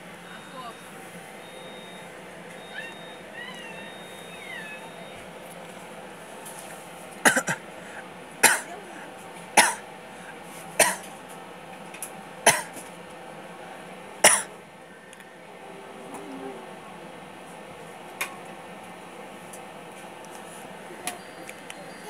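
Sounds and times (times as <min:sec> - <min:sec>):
steady low hum: 0:00.0 - 0:22.0
person coughing: 0:07.2 - 0:07.6, 0:08.4 - 0:08.9, 0:09.6 - 0:09.8, 0:10.8 - 0:11.1, 0:12.5 - 0:12.8, 0:14.2 - 0:14.5.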